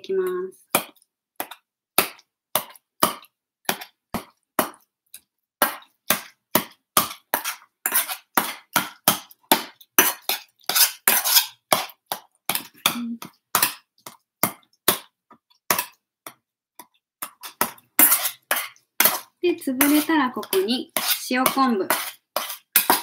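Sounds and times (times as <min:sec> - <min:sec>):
metal spoon scraping steel bowl: 0:07.3 - 0:08.6, 0:10.0 - 0:11.9, 0:17.4 - 0:23.0.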